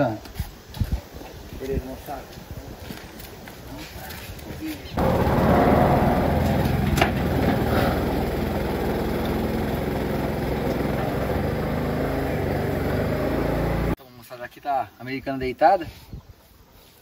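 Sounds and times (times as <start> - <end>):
hydraulic motor running: 5.0 - 14.0.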